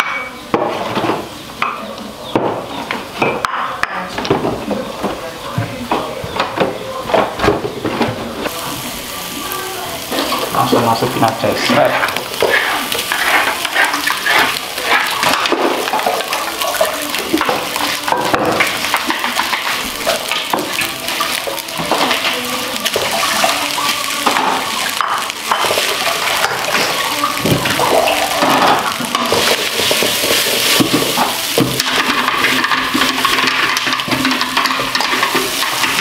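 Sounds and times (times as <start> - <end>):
rice sizzling in wok: 8.4 - 36.0
spatula scraping wok: 8.4 - 36.0.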